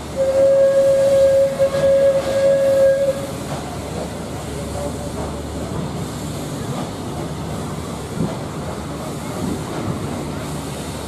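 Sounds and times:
train wheels on rail: 0:00.0 - 0:11.0.

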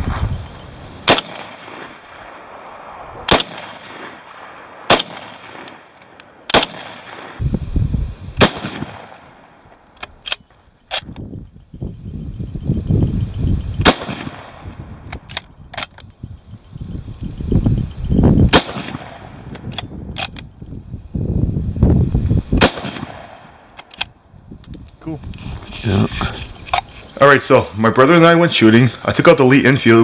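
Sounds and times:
rifle shots: 0:01.0 - 0:07.4, 0:08.4 - 0:11.2, 0:13.8 - 0:16.0, 0:18.5 - 0:20.4, 0:22.6 - 0:24.1
rifle bolt clicks: 0:09.1 - 0:11.3, 0:14.7 - 0:16.2, 0:19.5 - 0:20.5, 0:23.7 - 0:25.0.

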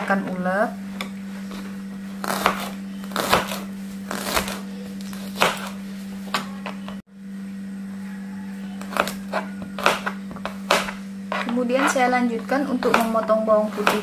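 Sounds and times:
low steady hum: 0:00.0 - 0:14.0
knife chopping on cutting board: 0:02.2 - 0:04.6, 0:05.2 - 0:06.9, 0:08.8 - 0:14.0.

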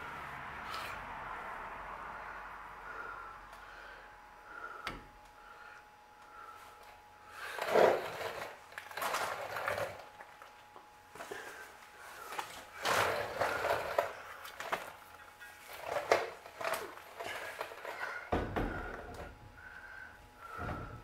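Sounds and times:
handling and rustling noises: 0:06.8 - 0:19.4.

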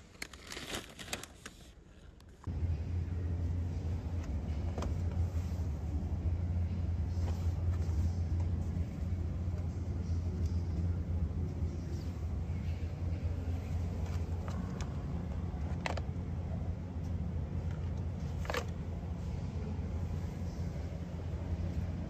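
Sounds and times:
plastic packaging clicks and crinkles: 0:00.0 - 0:01.8
supermarket ambience hum: 0:00.0 - 0:22.0.

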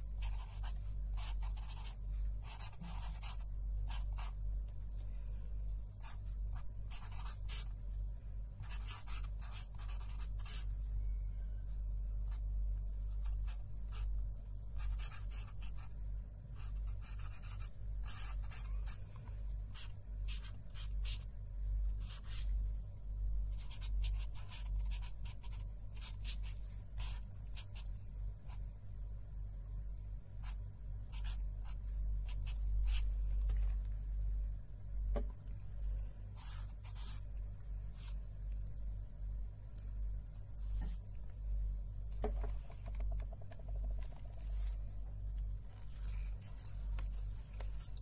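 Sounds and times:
steady low hum: 0:00.0 - 0:48.0
pen scratching on paper: 0:00.2 - 0:04.4, 0:06.0 - 0:07.7, 0:08.6 - 0:10.7, 0:14.8 - 0:15.9, 0:16.6 - 0:19.0, 0:19.7 - 0:21.3, 0:22.0 - 0:22.5, 0:23.5 - 0:27.9, 0:30.4 - 0:33.1, 0:36.4 - 0:37.3.

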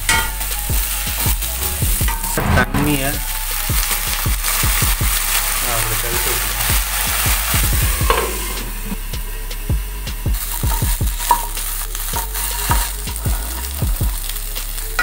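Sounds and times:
vegetables sizzling in a wok: 0:00.0 - 0:15.0
spatula scraping a pan: 0:10.4 - 0:15.0.

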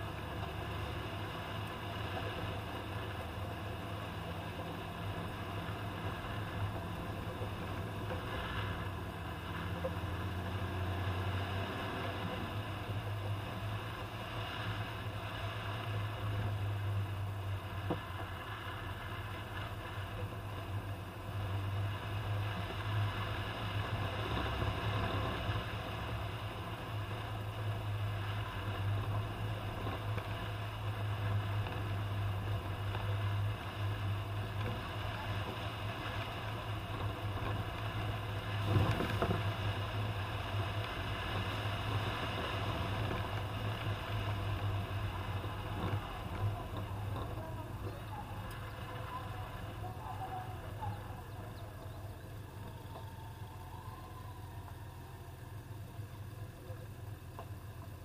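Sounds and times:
road noise: 0:00.0 - 0:58.0
vehicle engine drone: 0:00.0 - 0:58.0.

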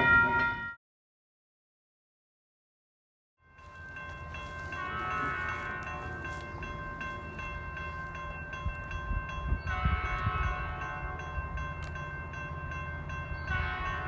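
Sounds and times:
crossing bell ringing: 0:00.0 - 0:00.8, 0:03.4 - 0:14.0
distant train horn: 0:03.6 - 0:08.2, 0:09.0 - 0:11.9, 0:13.0 - 0:14.0
wind buffeting microphone: 0:04.2 - 0:14.0.

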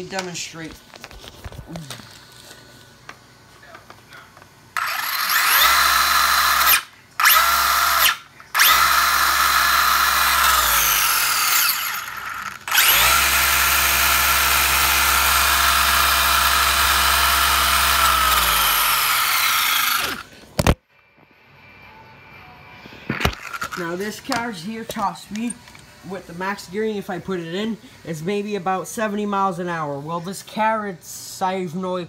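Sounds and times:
electric motor high-pitched whine: 0:04.8 - 0:20.7.

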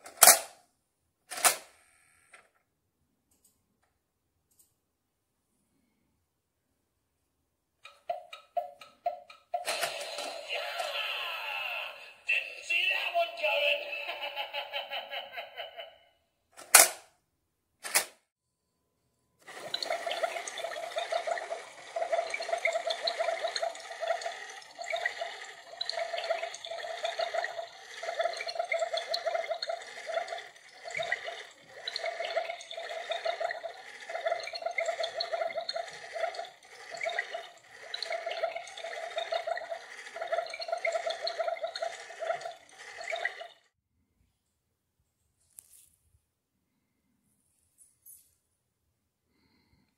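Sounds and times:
bubbling water sound effect: 0:19.5 - 0:43.7.

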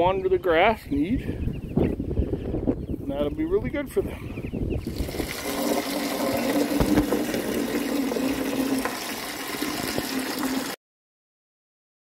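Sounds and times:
hose water filling a bucket: 0:04.8 - 0:10.8.

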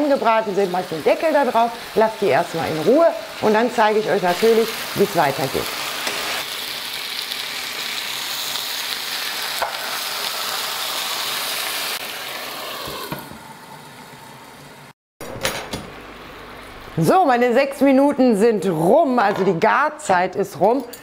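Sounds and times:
chicken sizzling in frying pan: 0:00.0 - 0:14.6.

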